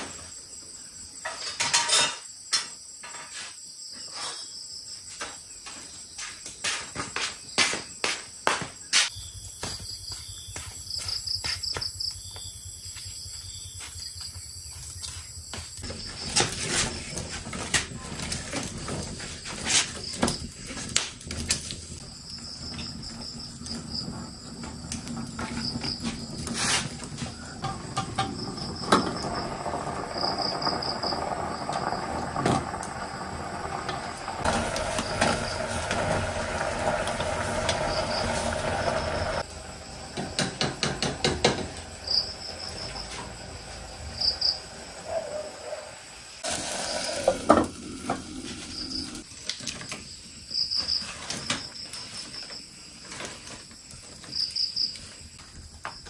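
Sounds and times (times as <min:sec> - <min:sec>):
insects chirping in trills: 0:00.0 - 0:56.0
hissing noise: 0:32.4 - 0:39.6, 0:46.4 - 0:49.2.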